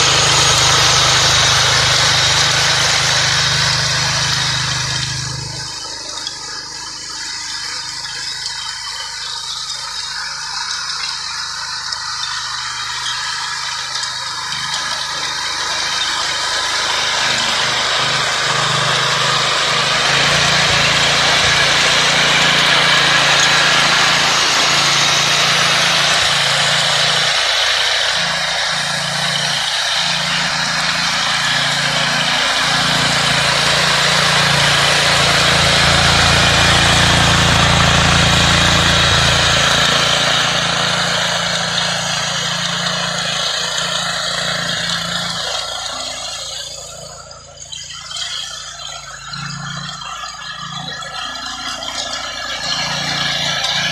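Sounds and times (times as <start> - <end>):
small engine running under load: 0.0 - 53.9
tiller tines churning soil: 0.0 - 53.9.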